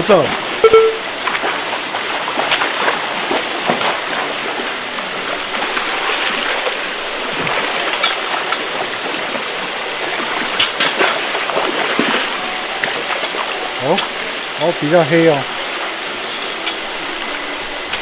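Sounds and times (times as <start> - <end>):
fish splashing in water: 0.3 - 14.6.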